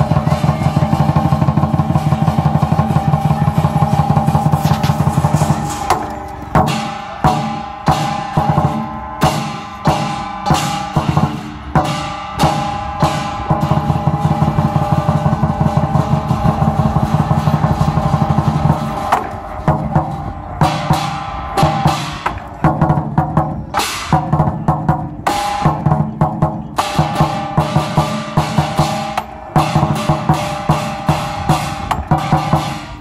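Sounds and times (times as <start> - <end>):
crashing hand cymbals: 0.0 - 22.4
large drum fast rolls: 0.0 - 33.0.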